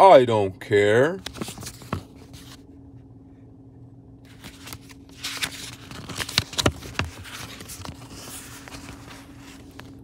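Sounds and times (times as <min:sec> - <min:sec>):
book pages turning: 0:01.2 - 0:02.6, 0:04.2 - 0:10.0.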